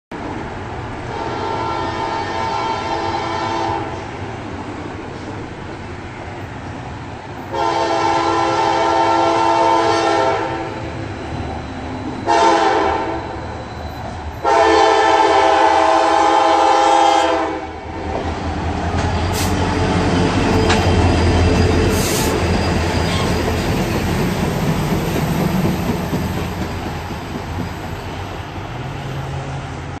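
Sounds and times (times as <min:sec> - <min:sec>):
train cars rolling on rails: 0:00.1 - 0:30.0
locomotive air horn: 0:01.1 - 0:04.0, 0:07.5 - 0:10.9, 0:12.2 - 0:13.4, 0:14.4 - 0:17.8, 0:21.9 - 0:22.4
locomotive engine rumble: 0:18.0 - 0:30.0.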